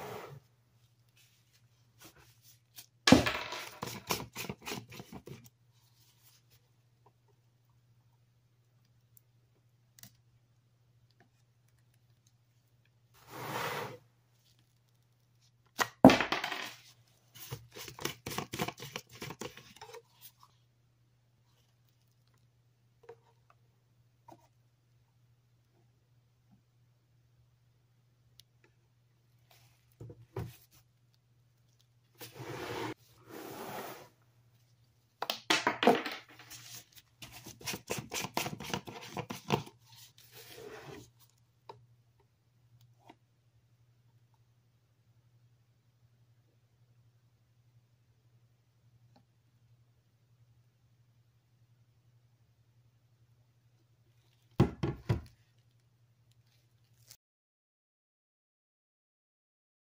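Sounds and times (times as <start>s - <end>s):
plastic jugs scraping: 32.2s - 34.2s.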